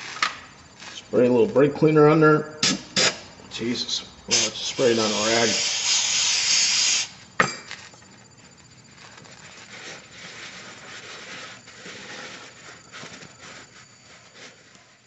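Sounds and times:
aerosol spray hissing: 0:04.3 - 0:07.2.

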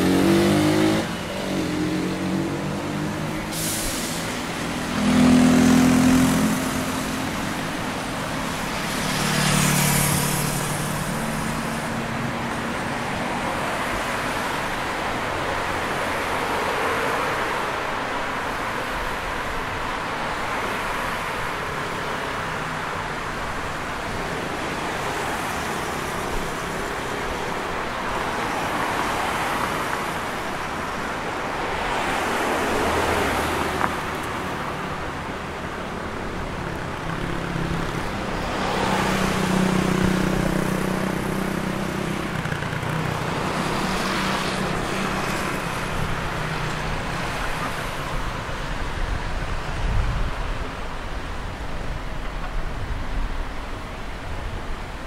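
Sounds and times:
vehicle passing close by: 0:00.0 - 0:11.9
passing cars: 0:00.0 - 0:55.0.

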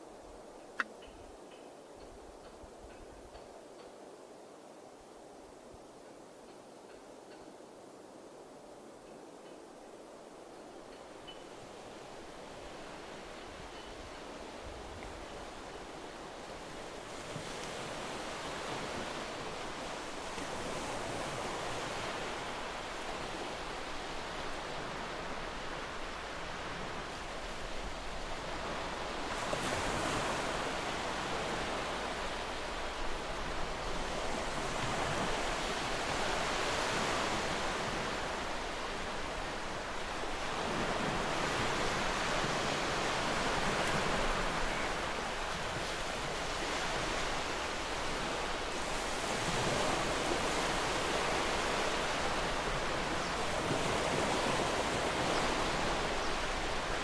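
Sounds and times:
waves breaking on shore: 0:11.5 - 0:57.0.

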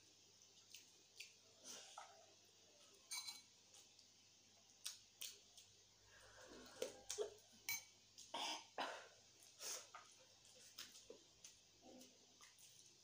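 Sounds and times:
chewing and lip smacks: 0:00.6 - 0:02.2
spoon scraping in a bowl: 0:03.1 - 0:03.5.

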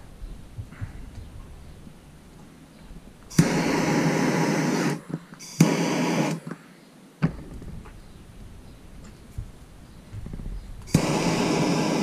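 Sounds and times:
gas torch flame hissing: 0:03.3 - 0:06.6, 0:10.9 - 0:12.0
torch ignition pop: 0:03.3 - 0:06.6, 0:10.8 - 0:12.0.

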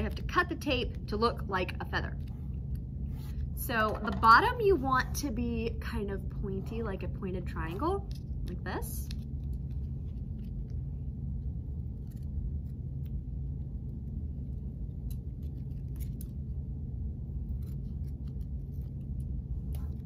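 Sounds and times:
low room hum: 0:00.0 - 0:20.0
scissors snipping tape: 0:17.5 - 0:18.8.

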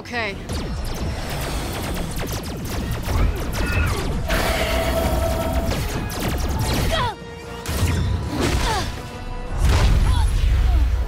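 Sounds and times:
energy-blast zaps: 0:00.4 - 0:07.0.

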